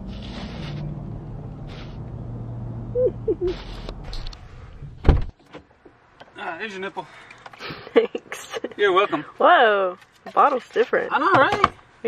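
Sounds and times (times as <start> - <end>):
vehicle cabin hum: 0.0 - 6.0
loud thump: 4.9 - 5.4.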